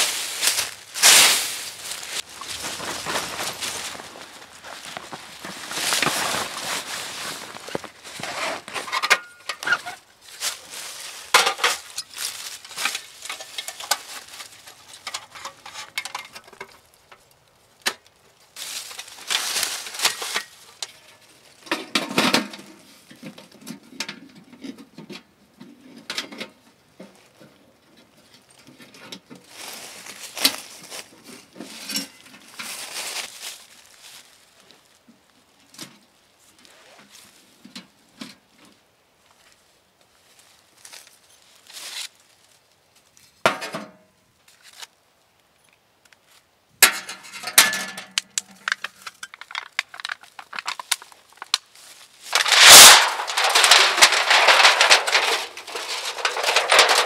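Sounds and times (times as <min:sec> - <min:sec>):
dry leaves rustling: 0:00.0 - 0:23.1, 0:29.4 - 0:43.4, 0:44.4 - 0:45.0, 0:47.0 - 0:57.0
metal panels clinking and rattling: 0:46.8 - 0:51.5, 0:52.3 - 0:57.0.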